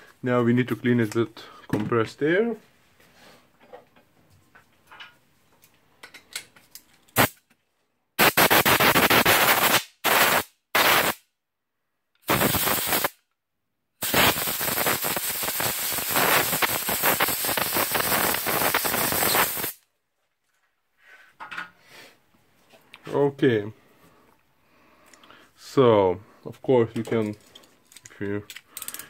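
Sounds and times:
compressed air blasts: 8.2s - 11.2s, 12.2s - 13.2s, 14.0s - 19.8s.

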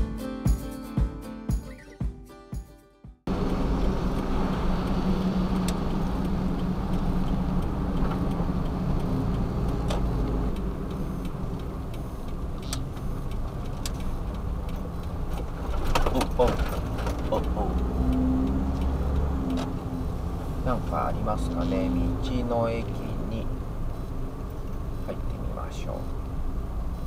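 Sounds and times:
engine and tyre drone: 3.3s - 27.0s
faint ticks: 16.6s - 20.5s.

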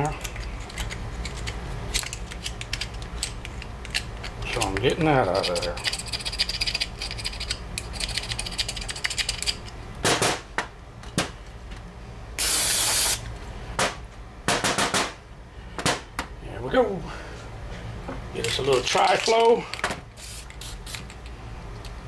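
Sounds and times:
short hissing spray: 12.4s - 13.2s, 20.2s - 20.8s.

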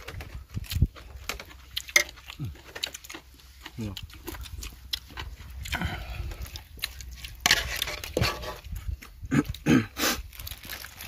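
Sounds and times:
hands eating from metal bowls: 0.0s - 11.0s.

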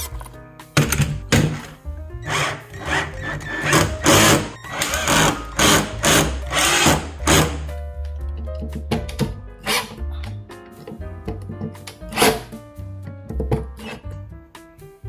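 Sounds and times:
background music: 0.0s - 15.0s
power screwdriver driving screws: 2.2s - 7.6s.

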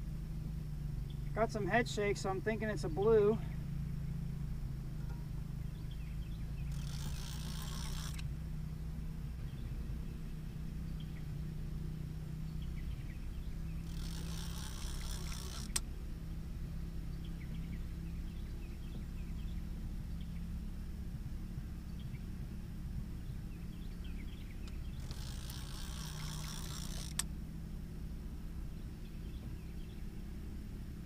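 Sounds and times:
low steady hum: 0.0s - 31.0s
fishing reel drag buzzing: 6.6s - 8.3s, 13.8s - 15.8s, 24.6s - 27.3s
sharp click: 15.1s - 15.9s, 26.2s - 27.3s.

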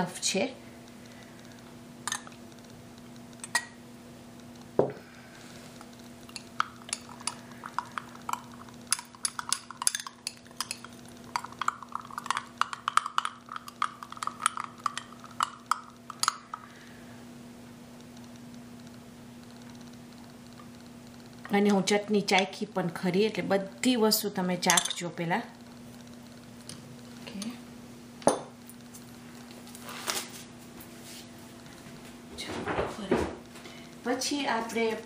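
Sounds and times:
metal spoon clinking on glass: 24.7s - 25.0s.

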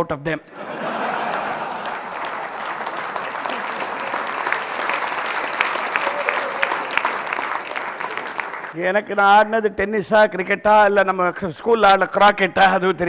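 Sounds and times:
audience applauding: 0.6s - 8.8s
individual sharp claps: 1.2s - 8.8s.

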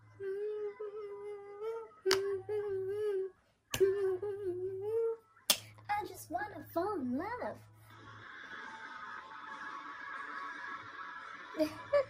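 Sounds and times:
person humming: 0.0s - 5.2s.

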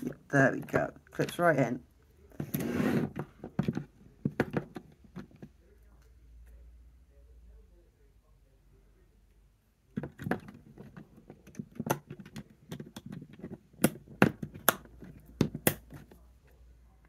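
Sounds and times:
sharp plastic snaps: 11.5s - 16.0s.

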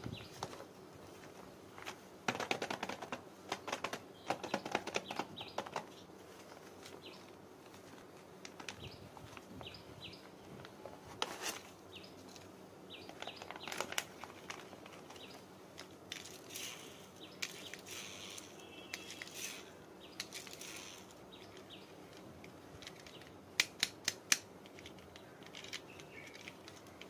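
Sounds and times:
birds chirping faintly: 0.0s - 23.6s, 24.6s - 27.0s
plastic packaging crinkling: 13.1s - 21.2s.

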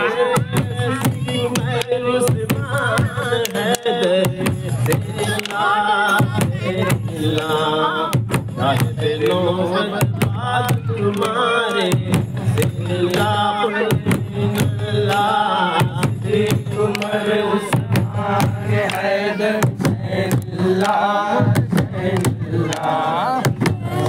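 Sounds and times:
men chanting together: 0.0s - 24.0s
barrel drums beaten with sticks: 0.3s - 24.0s
hands clapping in time: 0.3s - 24.0s.

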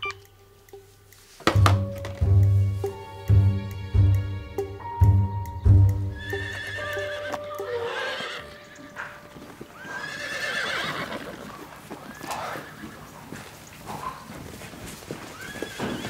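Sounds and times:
music with pulsing beat: 1.5s - 6.5s
horses whinnying: 6.2s - 14.4s, 15.1s - 16.0s.

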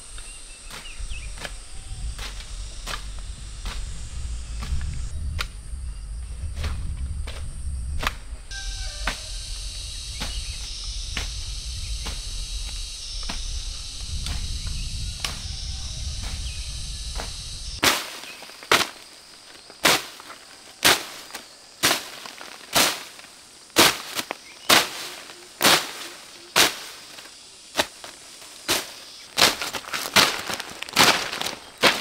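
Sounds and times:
insects chirring: 0.0s - 32.0s
low rumble: 1.1s - 17.8s
hoe chopping into soil: 17.2s - 19.1s, 19.8s - 27.2s, 27.8s - 32.0s.

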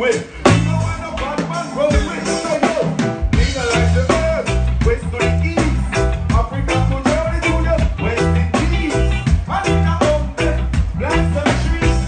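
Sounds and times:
live reggae band: 0.0s - 12.0s.

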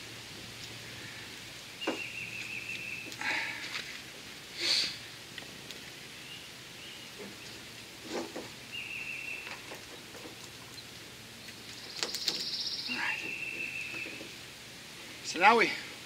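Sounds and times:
high bird trills: 8.7s - 9.7s, 11.6s - 14.4s.

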